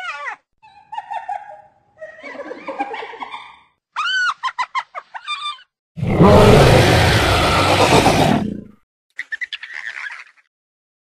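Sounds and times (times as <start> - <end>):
loud rough creature roar: 6.0 - 8.7
hyena whooping and giggling: 7.3 - 8.4.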